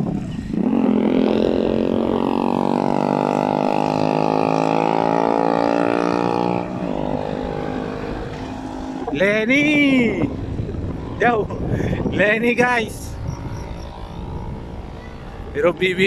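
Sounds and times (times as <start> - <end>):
engine buzzing drone: 0.0 - 16.0.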